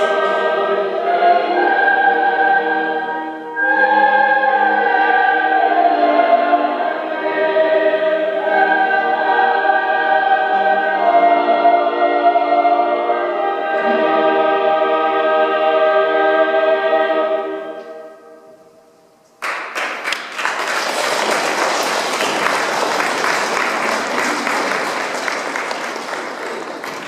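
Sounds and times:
choir singing held notes: 0.0 - 18.8, 20.7 - 27.0
audience applause: 19.4 - 27.0.

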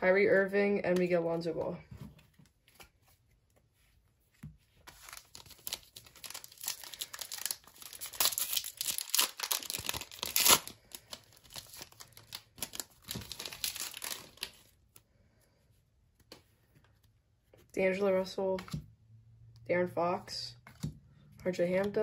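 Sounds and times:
foil wrapper tearing and crinkling: 4.9 - 14.7.

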